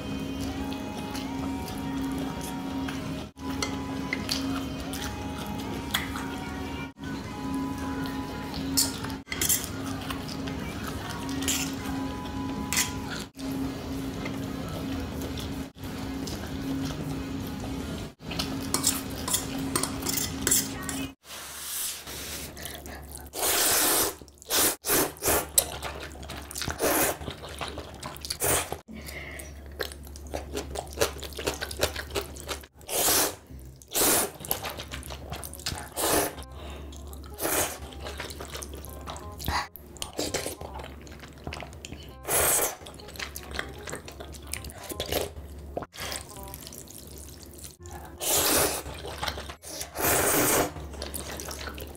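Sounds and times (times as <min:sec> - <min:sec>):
utensils clinking against bowl: 0:08.6 - 0:12.0, 0:12.6 - 0:13.3, 0:18.4 - 0:21.2
slurping noodle soup: 0:21.3 - 0:28.8, 0:30.4 - 0:36.5, 0:37.3 - 0:38.9, 0:39.5 - 0:42.9, 0:47.6 - 0:51.9
chewing: 0:25.2 - 0:51.9.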